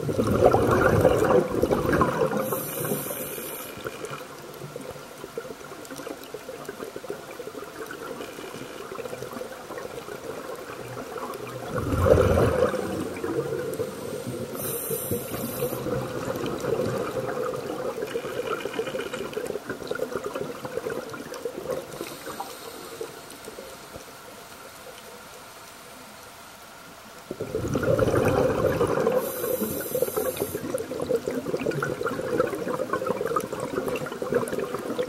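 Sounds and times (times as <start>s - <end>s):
exhaled bubbles gurgling: 0.0s - 25.3s, 27.2s - 35.0s
regulator inhale hiss: 2.2s - 4.2s, 13.6s - 16.1s, 21.9s - 24.0s, 29.1s - 30.8s.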